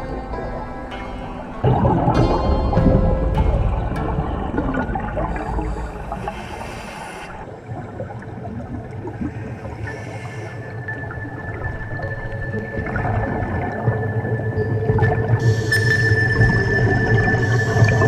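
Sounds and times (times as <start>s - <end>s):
underwater bubbling: 0.0s - 18.0s
thin steady whistle: 15.4s - 18.0s.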